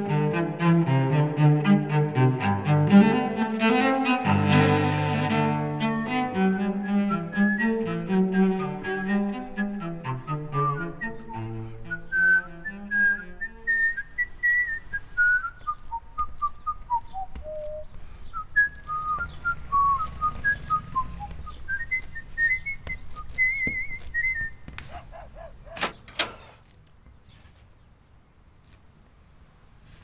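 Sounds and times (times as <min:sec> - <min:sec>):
person whistling a melody: 0:05.8 - 0:24.6.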